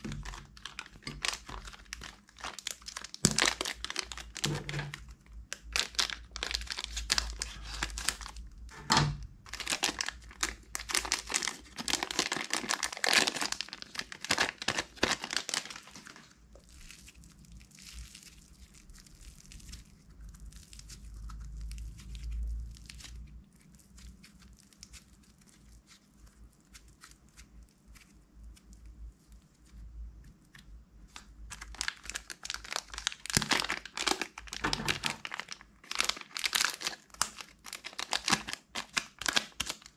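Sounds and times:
plastic packet crinkling: 0:00.0 - 0:08.8, 0:09.4 - 0:28.8, 0:30.5 - 0:39.9
clay being kneaded by hand: 0:00.0 - 0:39.8.

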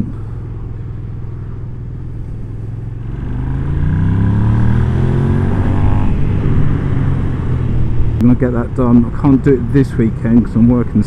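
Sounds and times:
motorcycle engine accelerating: 0:00.0 - 0:08.2.

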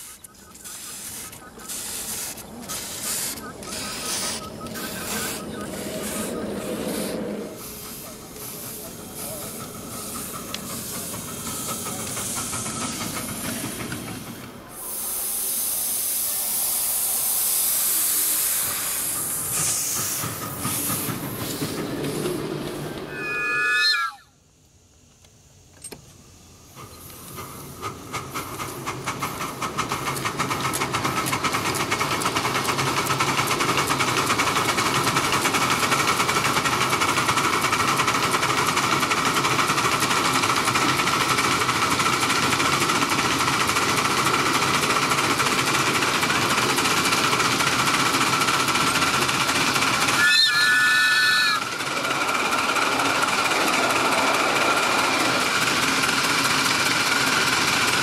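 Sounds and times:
steam locomotive exhaust beats: 0:00.0 - 0:23.5, 0:26.2 - 0:58.0
steam whistle blast: 0:23.1 - 0:24.3, 0:50.2 - 0:51.6.

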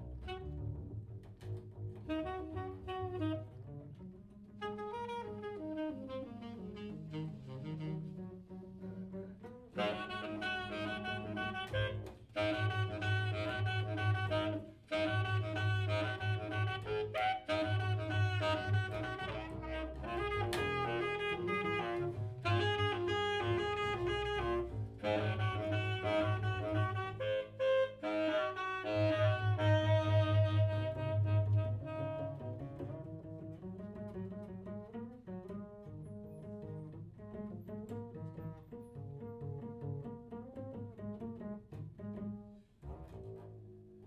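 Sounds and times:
saxophone playing: 0:00.0 - 0:00.7, 0:02.0 - 0:34.1.

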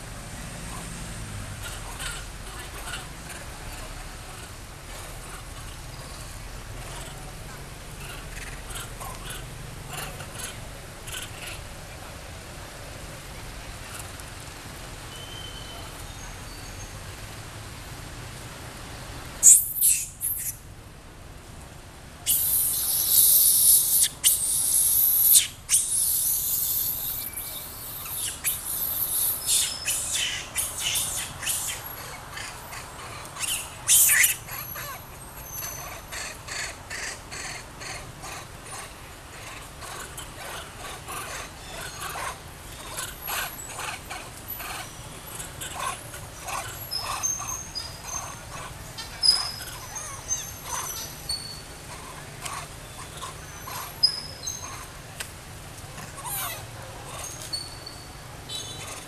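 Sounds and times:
high chirps and squeaks: 0:19.4 - 0:20.6, 0:22.3 - 0:32.0, 0:33.4 - 0:36.0, 0:46.8 - 0:51.7, 0:53.0 - 0:54.8, 0:56.2 - 0:59.0.

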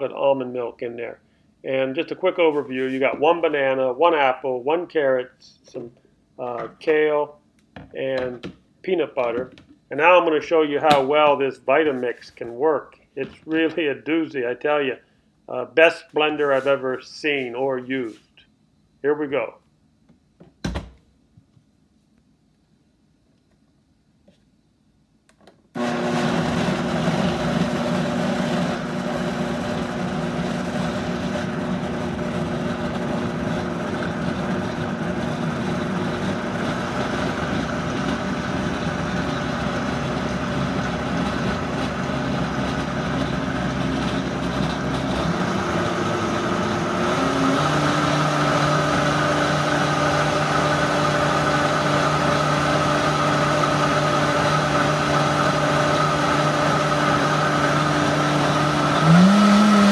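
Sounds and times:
blender motor running: 0:25.8 - 0:59.9.

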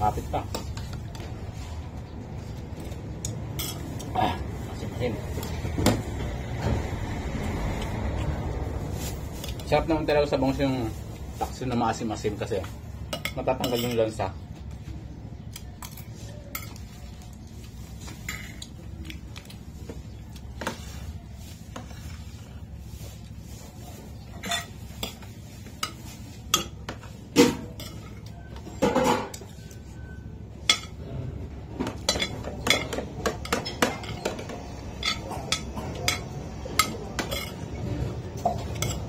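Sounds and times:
cutlery clinking on plates: 0:03.6 - 0:04.1, 0:13.1 - 0:14.1, 0:18.1 - 0:18.8, 0:24.3 - 0:29.8, 0:31.8 - 0:37.7, 0:38.4 - 0:39.0.

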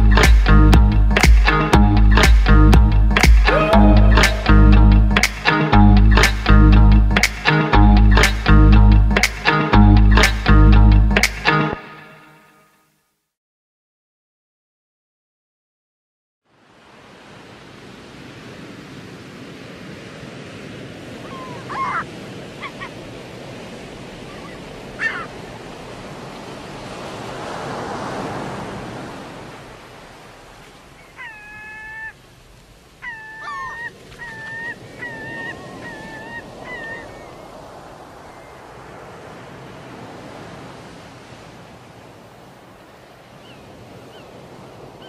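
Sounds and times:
surf washing onto beach: 0:00.0 - 0:06.6, 0:16.5 - 0:45.0.

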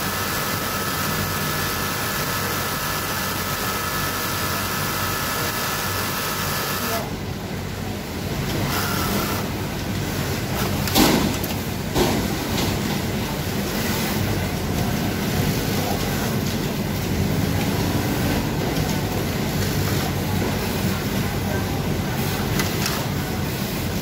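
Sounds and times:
sewing machines droning: 0:00.0 - 0:07.3, 0:08.0 - 0:10.9.

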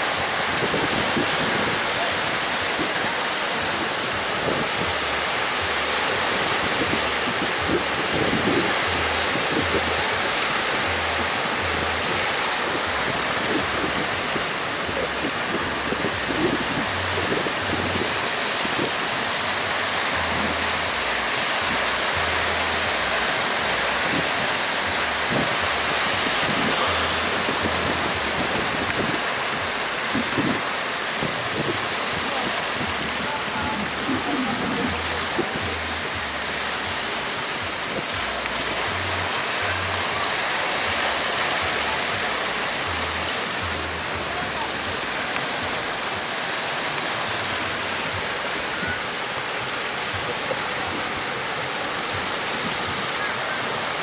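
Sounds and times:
wind buffeting microphone: 0:00.0 - 0:22.3, 0:23.1 - 0:40.3
sea surf breaking: 0:00.0 - 0:54.0.

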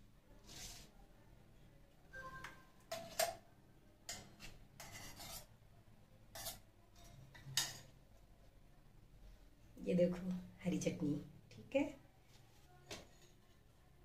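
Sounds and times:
spoon scraping steel jar: 0:02.9 - 0:03.4, 0:04.1 - 0:05.5, 0:06.3 - 0:07.9.

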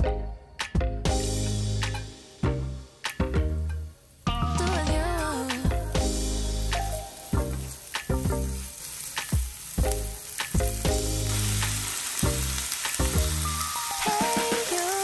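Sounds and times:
background music with steady beat: 0:00.0 - 0:15.0
vegetables sizzling in oil: 0:04.1 - 0:15.0.

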